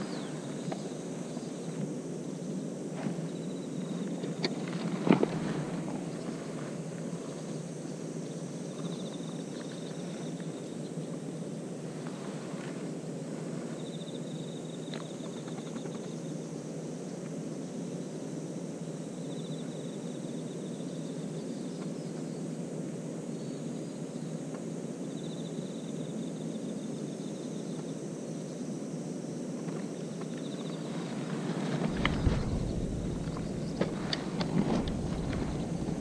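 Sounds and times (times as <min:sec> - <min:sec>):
steady low rumble: 0:31.8 - 0:36.0.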